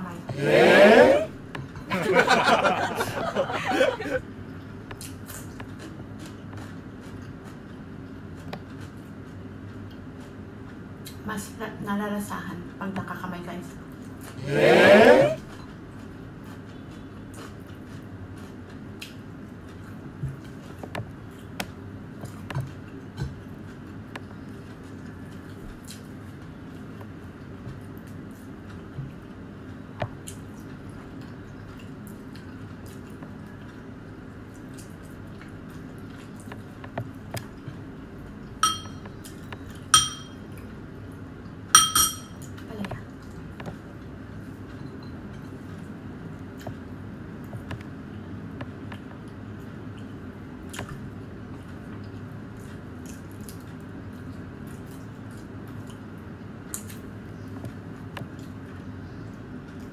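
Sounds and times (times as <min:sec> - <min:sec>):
steady low hum: 0:00.0 - 0:53.1
close eating sounds: 0:00.2 - 0:11.6, 0:13.6 - 0:41.7, 0:42.4 - 0:59.9
person chewing and lip smacking: 0:04.5 - 0:11.2
metal spoon clinking ceramic bowl: 0:38.6 - 0:39.0, 0:40.0 - 0:40.4, 0:41.8 - 0:42.4.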